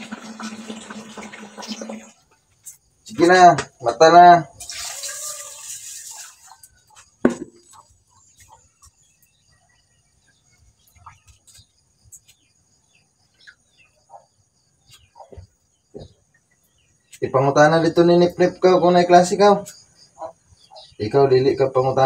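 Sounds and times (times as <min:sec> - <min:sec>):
high insect trill: 0:01.6 - 0:22.0
knocks on sink counter: 0:07.2 - 0:07.6.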